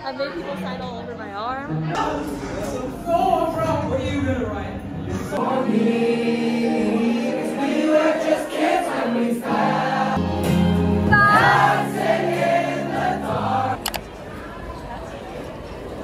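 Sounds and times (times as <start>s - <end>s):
crowd of students singing: 5.1s - 14.0s.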